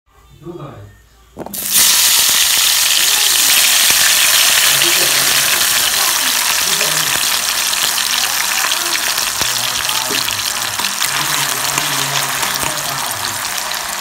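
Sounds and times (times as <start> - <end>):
food sizzling in hot oil: 1.5 - 14.0.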